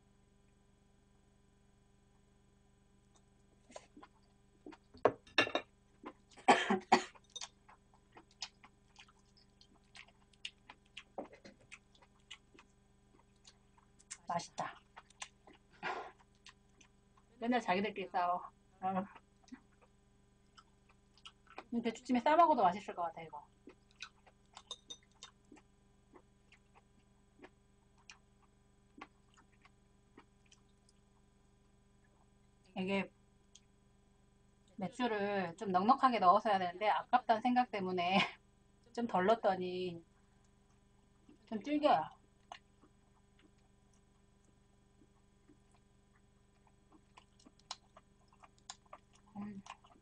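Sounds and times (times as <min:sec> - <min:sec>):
low electrical hum: 0:00.0 - 0:50.0
person eating clicks: 0:07.1 - 0:14.2, 0:23.6 - 0:31.0, 0:46.6 - 0:50.0
person chewing: 0:07.1 - 0:17.3, 0:19.1 - 0:21.7, 0:23.5 - 0:31.1, 0:42.4 - 0:50.0
wet mouth clicks and smacks: 0:46.9 - 0:50.0.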